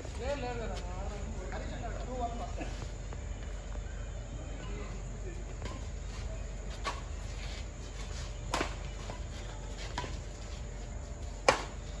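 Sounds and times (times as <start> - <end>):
racket hitting shuttlecock: 8.5 - 9.2, 11.4 - 11.8.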